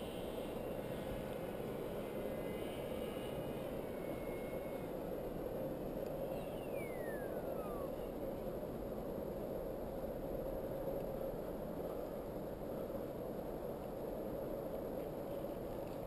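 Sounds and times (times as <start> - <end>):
thin whine falling in pitch: 5.9 - 8.2.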